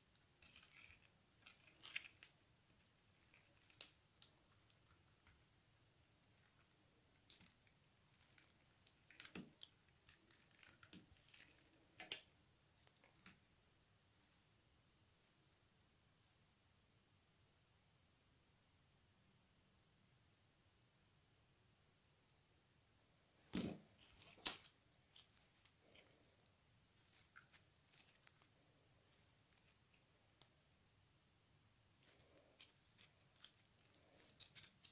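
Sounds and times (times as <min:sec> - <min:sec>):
faint crackles and snaps: 0:00.1 - 0:05.5, 0:06.3 - 0:13.4, 0:23.4 - 0:30.8, 0:32.0 - 0:34.9
slime sticky squishes: 0:00.1 - 0:05.5, 0:06.2 - 0:13.4, 0:32.0 - 0:34.9.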